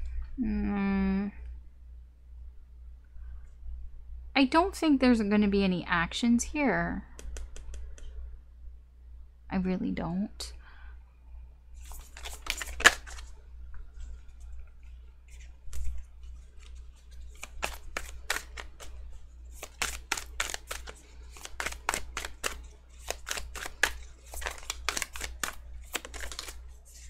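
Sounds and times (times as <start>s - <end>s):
steady low hum: 0.0s - 27.0s
cards being shuffled: 11.8s - 13.4s, 14.0s - 27.0s.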